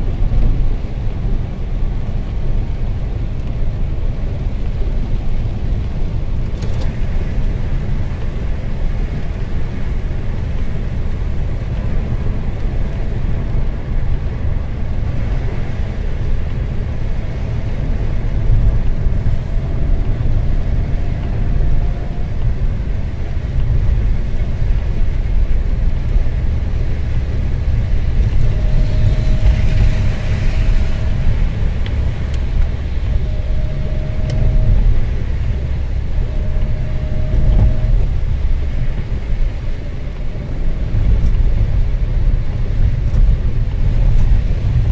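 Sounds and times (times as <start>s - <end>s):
car tyres and engine rumbling: 0.0s - 44.9s
hiss from wet road: 22.2s - 34.1s.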